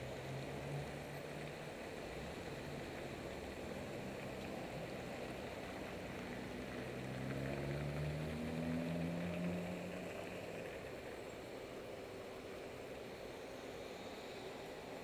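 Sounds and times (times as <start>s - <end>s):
traffic tyres and engines hissing: 0.0s - 15.0s
car engine accelerating: 2.2s - 11.0s.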